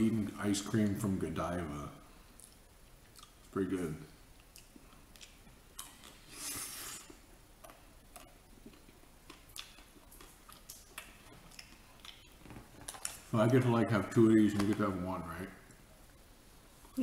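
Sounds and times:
wet mouth chewing clicks: 7.6s - 12.3s.

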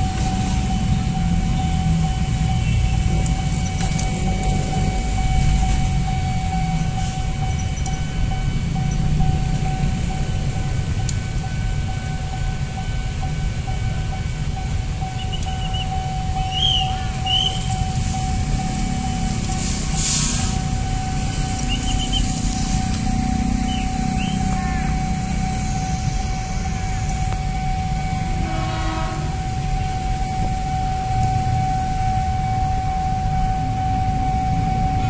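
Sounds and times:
railway yard rumble and hum: 0.0s - 35.0s
bird chirps: 21.6s - 22.4s.

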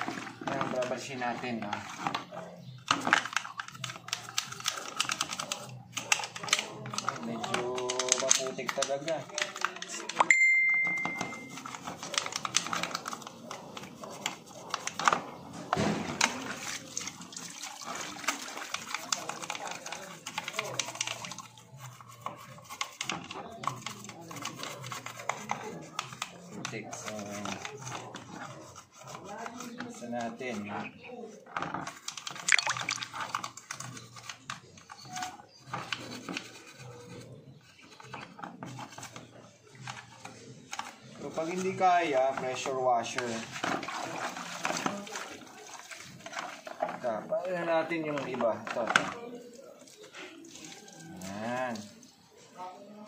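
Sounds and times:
water sloshing in bucket: 0.0s - 9.9s, 11.1s - 25.2s, 31.7s - 36.8s, 37.8s - 52.6s
scrubbing plastic by hand: 0.0s - 10.2s, 10.9s - 52.9s
small clicks and scrapes: 0.0s - 10.3s, 11.2s - 52.5s.

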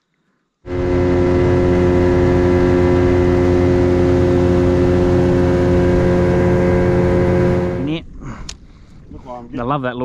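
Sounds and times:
hull rushing through water: 0.7s - 8.0s
outboard motor running: 0.7s - 8.0s.

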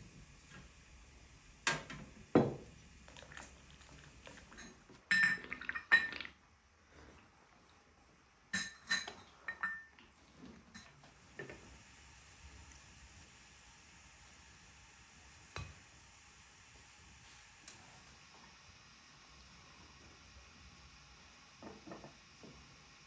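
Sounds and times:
glass tea cups clinking: 4.5s - 6.3s, 8.6s - 9.9s.

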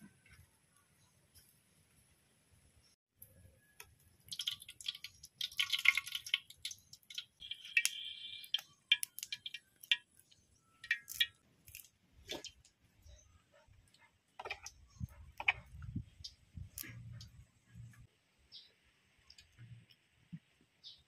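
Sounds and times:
oil pouring into a wok: 4.2s - 10.2s.

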